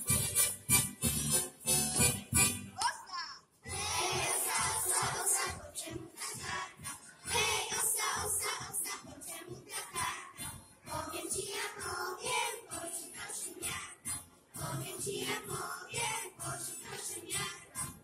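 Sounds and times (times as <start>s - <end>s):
children singing in chorus: 3.7s - 14.0s, 14.6s - 17.9s.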